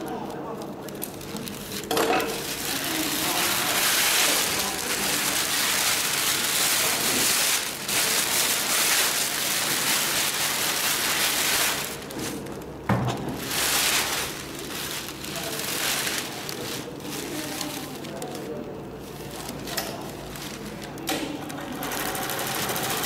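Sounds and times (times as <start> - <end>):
sail cloth rustling: 13.3 - 21.0.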